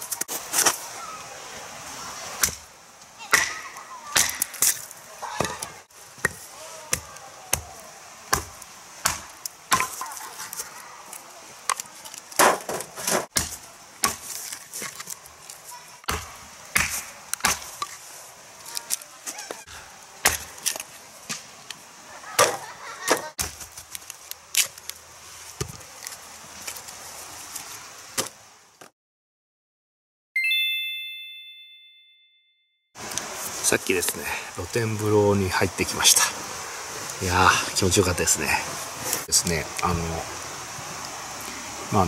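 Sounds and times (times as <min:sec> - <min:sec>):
hatchet chopping wood: 0:03.3 - 0:10.1, 0:12.4 - 0:14.9, 0:16.0 - 0:18.0, 0:20.2 - 0:21.5, 0:22.4 - 0:23.8
wood cracking apart: 0:23.4 - 0:25.0.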